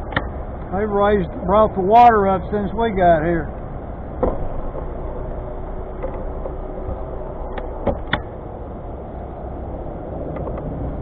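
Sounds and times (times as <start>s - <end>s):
outboard motor idling: 0.0s - 9.9s
sharp knocks: 4.2s - 5.0s.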